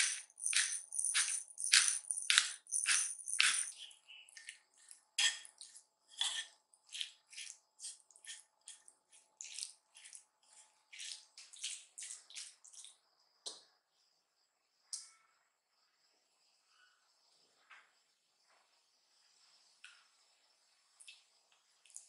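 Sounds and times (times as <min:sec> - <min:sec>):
spoon stirring wet mixture: 0:00.0 - 0:13.0.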